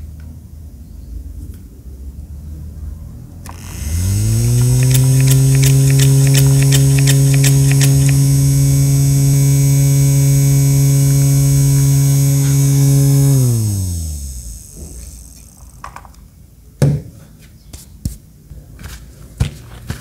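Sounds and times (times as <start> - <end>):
spray fan clicks: 3.4 - 16.2
small electric fan motor humming: 3.4 - 16.3.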